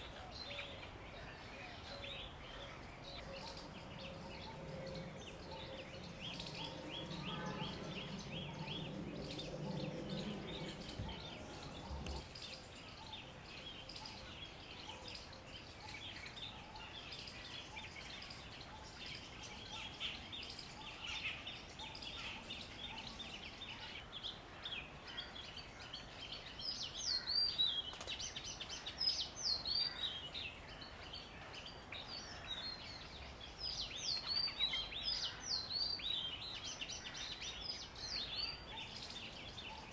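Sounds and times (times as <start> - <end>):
small birds chirping: 0.0 - 39.9
low rumble: 3.0 - 12.3.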